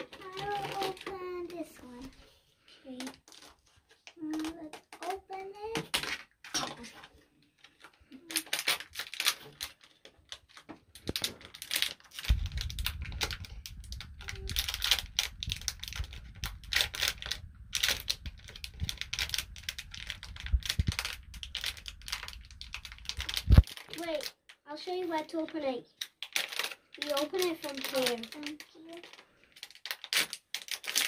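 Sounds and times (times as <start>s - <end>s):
plastic wrapper crinkling: 0.0s - 31.0s
low rumble: 12.1s - 23.6s.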